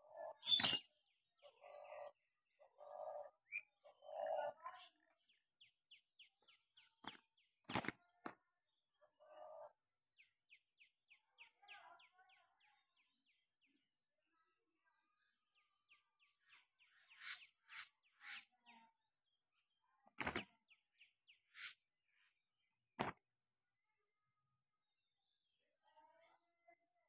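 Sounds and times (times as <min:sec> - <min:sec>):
small bird chirping: 0:00.0 - 0:08.5, 0:15.6 - 0:19.0, 0:19.9 - 0:22.3.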